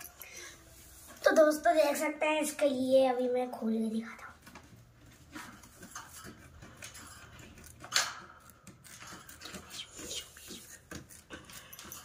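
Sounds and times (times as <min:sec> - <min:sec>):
small clicks and rustles: 0:04.1 - 0:12.0.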